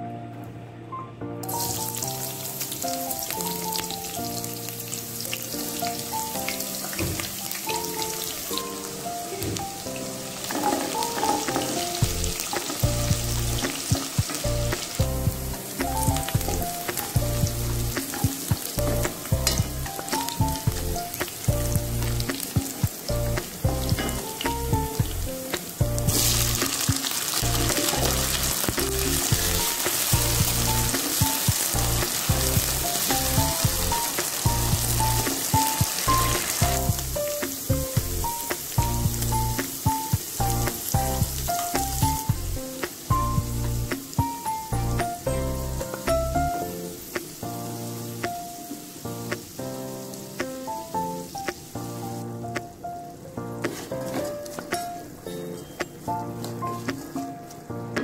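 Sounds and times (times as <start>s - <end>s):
onions sizzling in oil: 1.4s - 52.6s
background music with bass beat: 12.0s - 46.8s.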